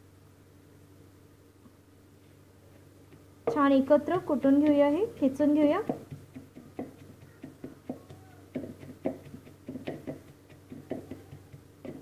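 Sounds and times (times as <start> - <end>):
pestle pounding in a mortar: 5.1 - 12.0.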